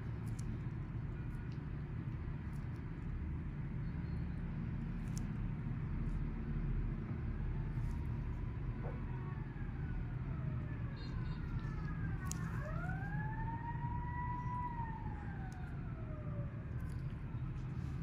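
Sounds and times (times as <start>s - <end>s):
steady low rumble: 0.0s - 18.0s
siren wailing: 7.2s - 18.0s.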